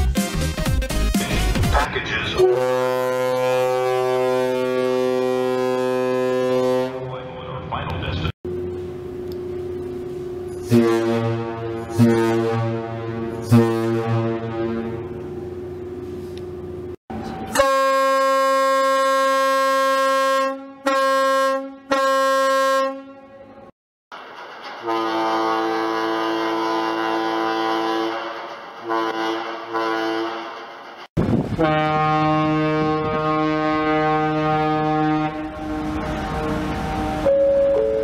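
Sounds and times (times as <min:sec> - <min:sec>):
high ferry horn blast: 0:02.3 - 0:07.6, 0:10.5 - 0:15.6, 0:17.4 - 0:23.7, 0:24.8 - 0:30.5, 0:31.6 - 0:38.0
low full ferry horn: 0:02.4 - 0:07.3, 0:10.5 - 0:15.8, 0:17.2 - 0:23.7, 0:24.8 - 0:30.5, 0:31.6 - 0:38.0.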